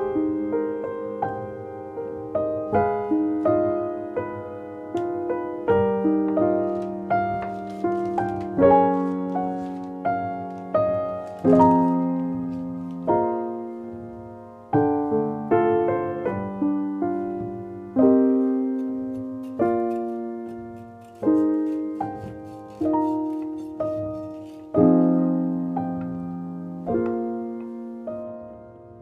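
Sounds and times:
gentle solo piano: 0:00.0 - 0:29.0.

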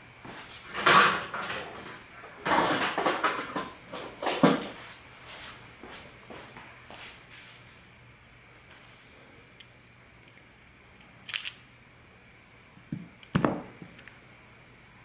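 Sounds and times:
small metal parts clinking: 0:11.2 - 0:11.7.

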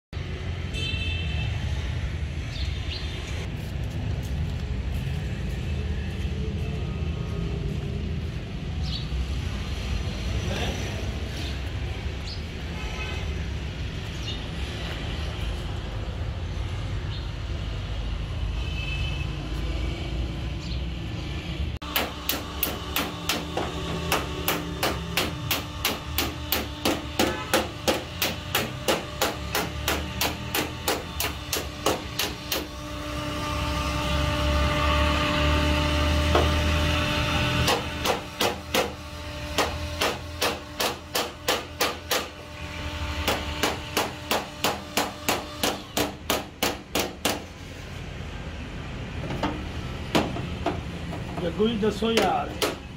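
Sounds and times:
hammer tapping on metal: 0:21.8 - 0:32.8, 0:37.6 - 0:42.4, 0:43.2 - 0:47.5, 0:49.3 - 0:51.5, 0:52.1 - 0:52.9.

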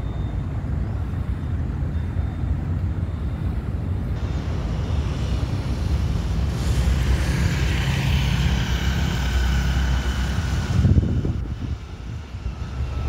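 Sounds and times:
faint high engine whine: 0:00.0 - 0:13.0
jet airliner low rumble: 0:00.0 - 0:13.0
rushing hiss: 0:04.2 - 0:13.0
wind buffeting microphone: 0:04.2 - 0:13.0.

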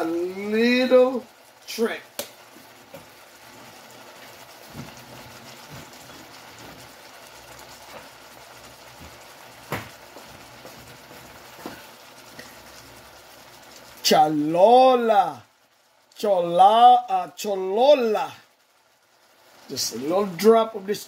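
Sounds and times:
stew bubbling: 0:00.0 - 0:14.2.

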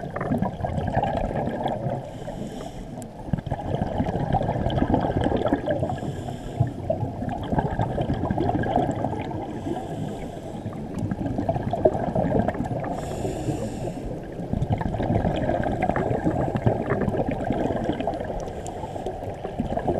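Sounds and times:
muffled underwater rumble: 0:00.0 - 0:19.9
regulator breath hiss: 0:02.1 - 0:03.0, 0:05.9 - 0:06.8, 0:09.6 - 0:10.8, 0:12.9 - 0:14.2, 0:18.5 - 0:19.3.

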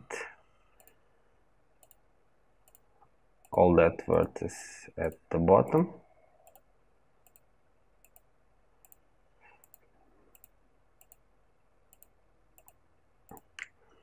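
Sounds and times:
computer mouse clicks: 0:00.8 - 0:01.0, 0:01.8 - 0:02.0, 0:02.6 - 0:03.6, 0:06.4 - 0:11.2, 0:11.9 - 0:13.8.

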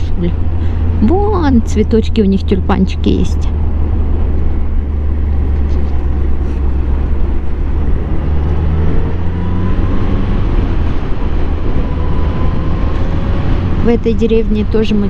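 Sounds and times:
wind and road noise: 0:00.0 - 0:15.0
motorcycle engine: 0:03.4 - 0:15.0.

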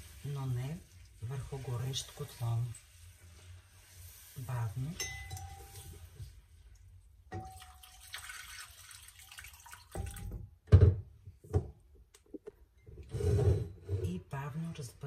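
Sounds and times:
broth pouring into pan: 0:00.0 - 0:10.3.

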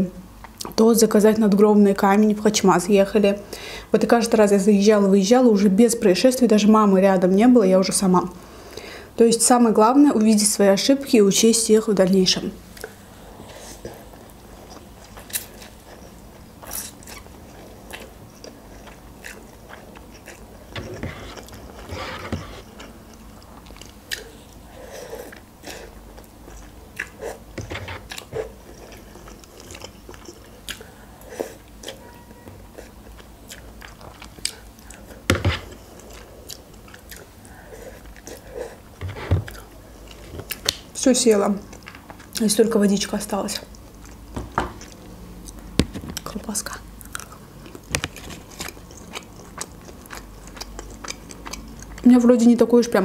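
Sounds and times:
chewing and slurping: 0:12.8 - 0:40.8.

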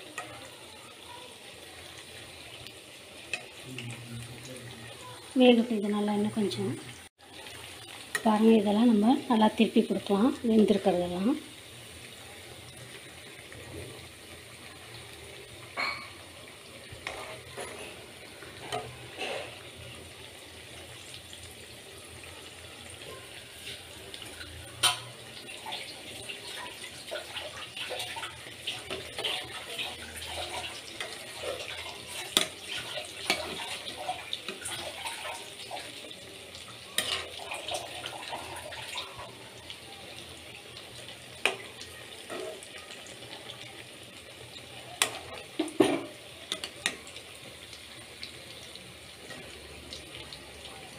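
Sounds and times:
fritters sizzling in hot oil: 0:00.0 - 0:50.9
spoon clinking against pan: 0:15.8 - 0:16.2, 0:24.8 - 0:25.1.

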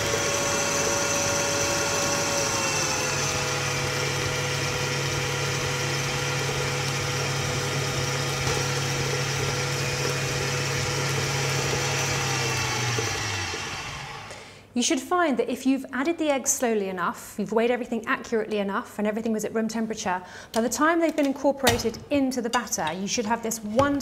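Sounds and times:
stand mixer motor hum and whine: 0:00.0 - 0:14.3.

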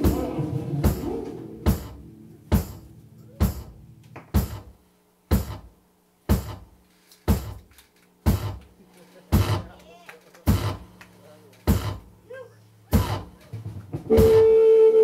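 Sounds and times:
drum hits in slow beat: 0:00.0 - 0:08.6, 0:09.3 - 0:09.7, 0:10.5 - 0:10.9, 0:11.7 - 0:12.1, 0:12.9 - 0:14.9
low amplifier hum: 0:00.0 - 0:15.0.

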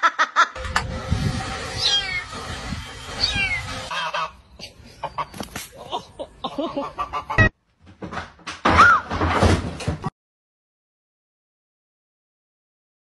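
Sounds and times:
kitten meowing: 0:01.8 - 0:02.2, 0:03.2 - 0:03.7
goose honking: 0:03.2 - 0:04.4.

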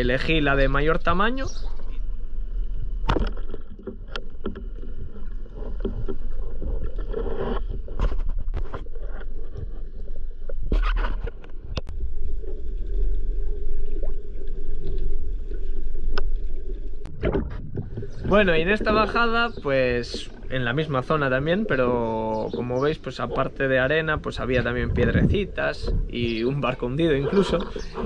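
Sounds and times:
underwater rumble: 0:00.0 - 0:28.0
knocks and clicks underwater: 0:01.7 - 0:21.8.

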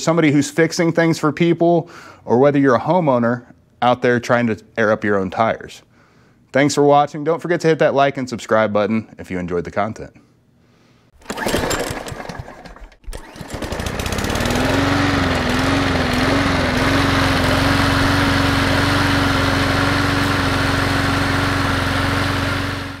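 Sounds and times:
lawn mower engine starting: 0:11.2 - 0:23.0.

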